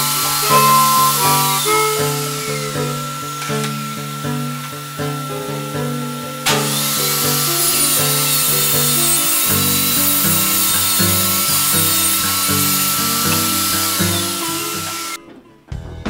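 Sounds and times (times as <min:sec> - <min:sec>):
saw blade cutting wood: 0:00.0 - 0:15.2
table saw motor whine: 0:00.0 - 0:15.2
blues music: 0:00.0 - 0:16.0.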